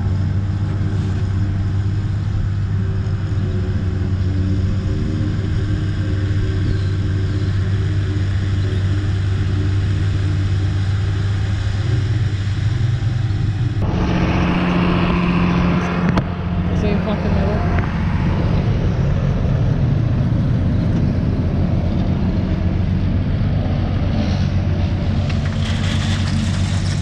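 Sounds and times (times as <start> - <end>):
truck engine idling: 0.0 - 27.0
higher-pitched engine note: 13.3 - 23.2.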